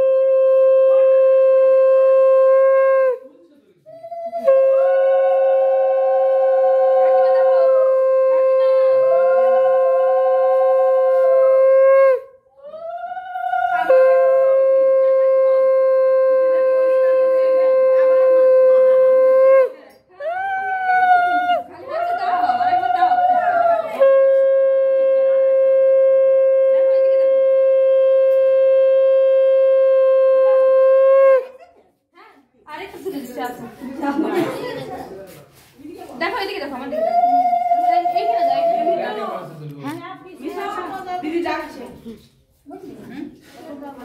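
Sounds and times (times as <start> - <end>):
conch shell wavering note: 0.0 - 3.2, 4.4 - 12.4, 13.5 - 21.2, 22.5 - 31.5
conch shell steady note: 0.0 - 3.3, 4.4 - 12.4, 13.6 - 19.9, 23.6 - 31.6.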